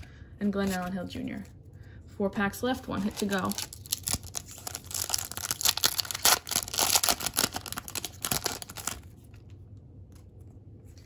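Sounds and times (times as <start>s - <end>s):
wrapper tearing and crinkling: 3.0s - 9.4s.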